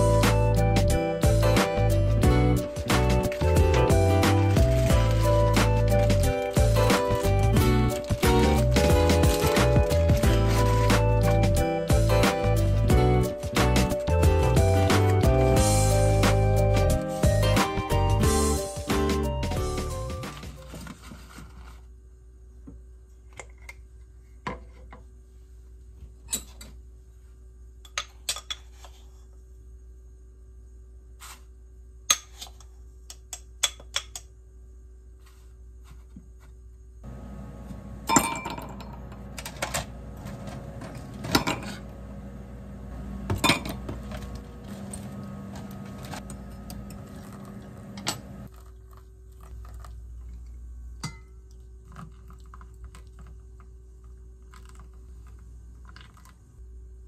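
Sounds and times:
ice cubes clinking in glass pitcher: 2.6s - 11.4s
steady hum: 34.4s - 57.0s.

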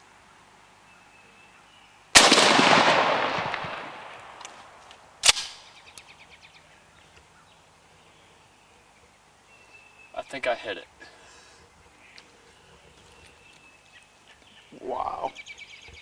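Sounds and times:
shotgun blast with rumbling echo: 2.2s - 5.6s.

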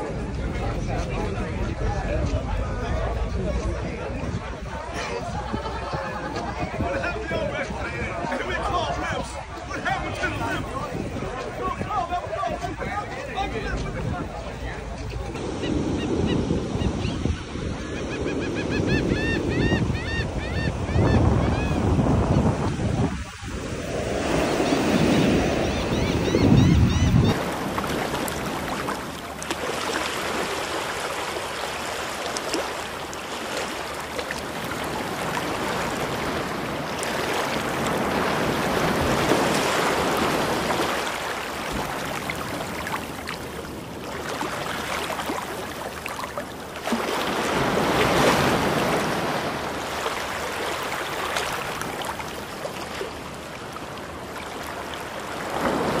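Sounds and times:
surf washing up sand: 21.2s - 26.3s, 27.2s - 56.0s.

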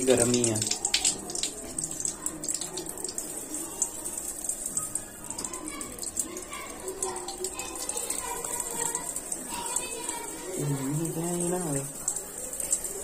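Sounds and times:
water running from tap: 0.0s - 13.0s.

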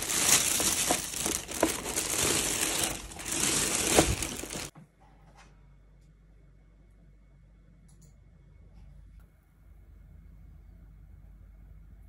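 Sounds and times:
plastic bag crinkling: 0.0s - 4.7s.

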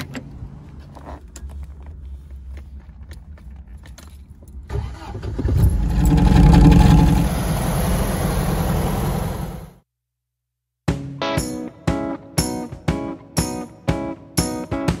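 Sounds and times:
car engine cranking and starting: 4.5s - 9.8s.

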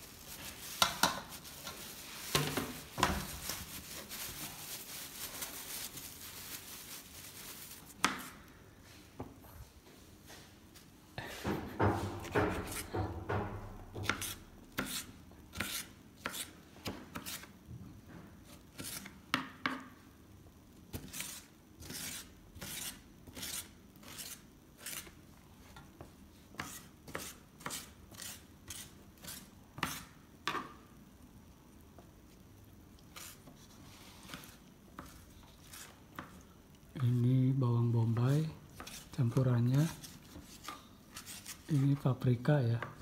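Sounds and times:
knife chopping on board: 11.8s - 15.0s.

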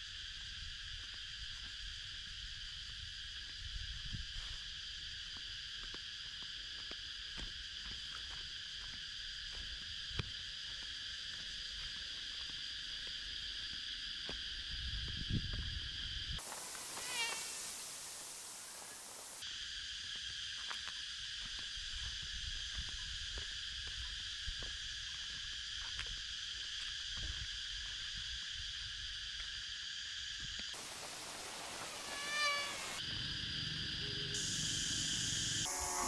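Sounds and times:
insects droning: 0.0s - 36.0s
loud hissing buzz: 16.4s - 19.4s, 30.8s - 36.0s
wavering animal call: 16.9s - 17.6s, 31.7s - 33.0s.

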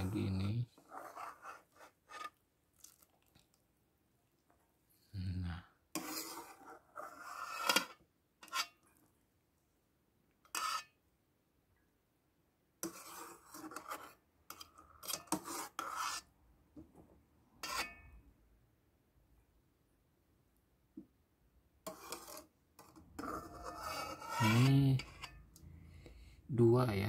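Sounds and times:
utensil scraping metal bowl: 0.0s - 2.4s, 5.9s - 8.9s, 10.4s - 11.0s, 12.8s - 16.4s, 17.6s - 18.2s, 21.8s - 25.7s.

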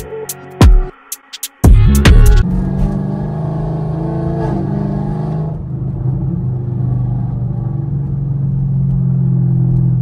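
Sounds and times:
background music: 0.0s - 2.6s
car engine cruising: 1.6s - 10.0s.

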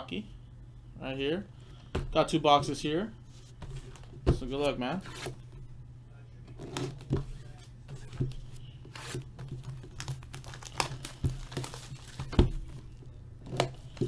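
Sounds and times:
plastic wrap crinkling: 9.0s - 12.9s.

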